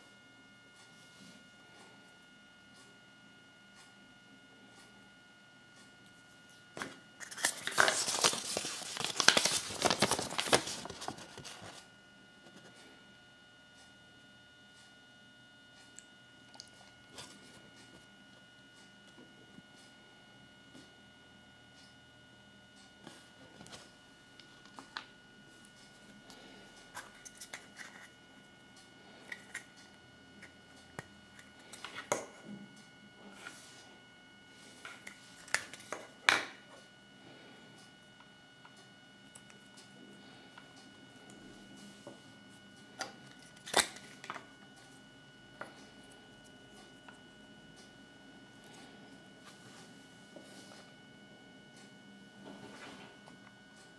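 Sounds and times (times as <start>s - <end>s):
paper leaflet crinkling: 7.2s - 11.8s.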